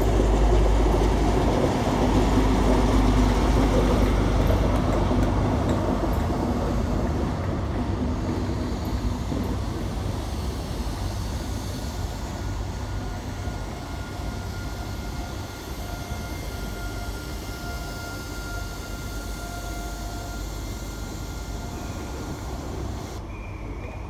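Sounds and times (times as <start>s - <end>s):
train rumbling: 0.0s - 24.0s
thin high tone: 13.8s - 24.0s.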